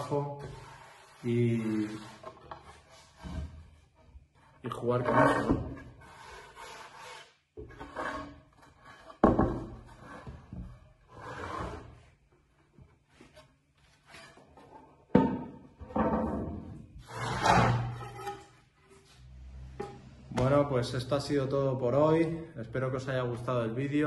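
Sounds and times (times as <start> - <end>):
wood scraping over bench: 0.4 - 4.0, 4.9 - 12.1, 15.8 - 20.6.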